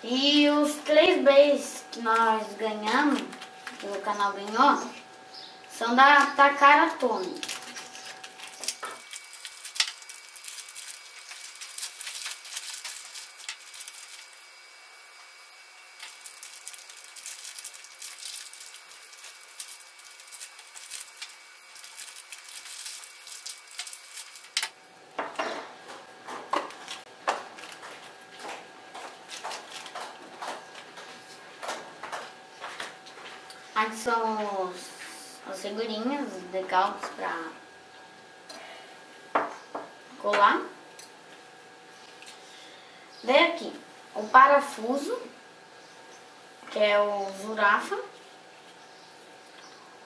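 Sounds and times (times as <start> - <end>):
cardboard and plastic crinkling: 7.0 - 24.8, 26.6 - 31.4.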